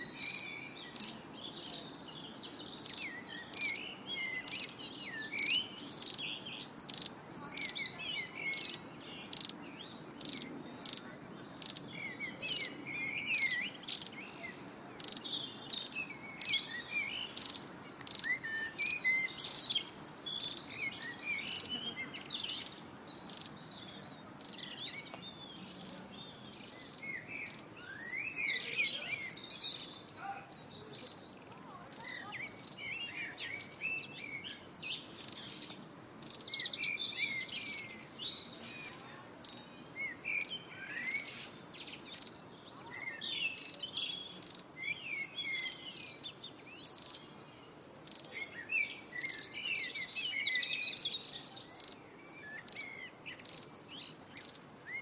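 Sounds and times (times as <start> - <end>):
songbirds chirping and trilling: 0.0 - 55.0.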